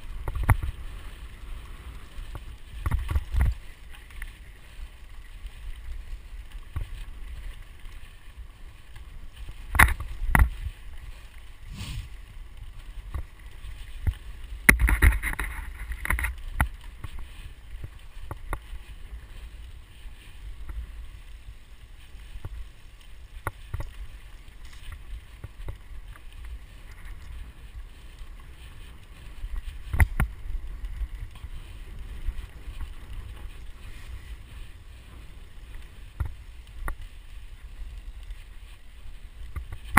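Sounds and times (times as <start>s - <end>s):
bike rolling on dirt trail: 0.0s - 39.9s
wind on microphone: 11.6s - 12.4s.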